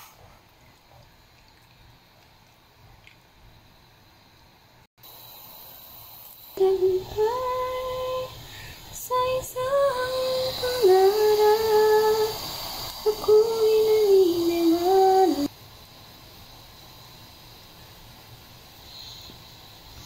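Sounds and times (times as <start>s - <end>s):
faint steady hiss: 0.0s - 20.0s
high voice singing slow tune: 6.6s - 12.4s, 13.0s - 15.5s.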